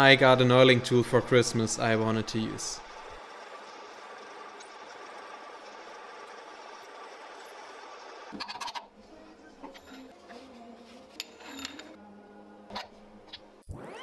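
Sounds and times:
steady hum: 0.0 - 14.0
drill press whirring: 1.0 - 8.4
metallic clinks and scrapes: 9.7 - 10.1, 11.0 - 12.0.

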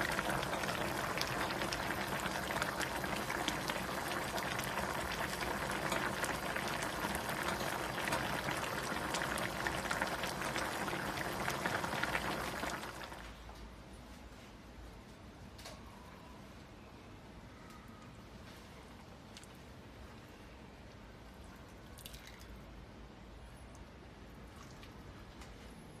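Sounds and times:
broth boiling and bubbling: 0.0 - 13.5.

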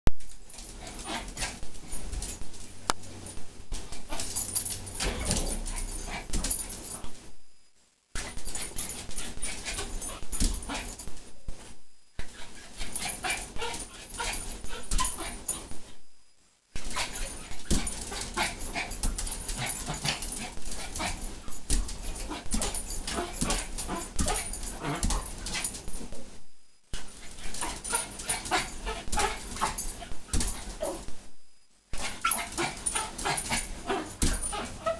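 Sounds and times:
dog yapping and whining: 32.0 - 34.9.

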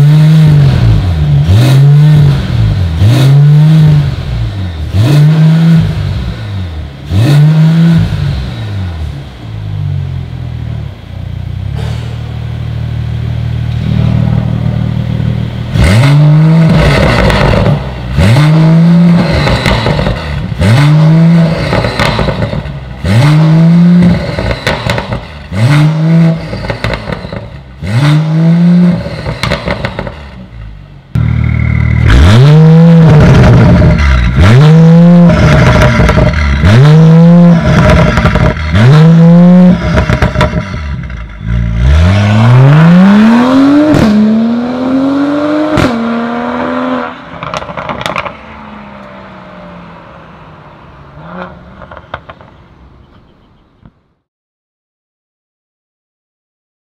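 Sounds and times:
car engine idling and revving: 0.0 - 54.2.

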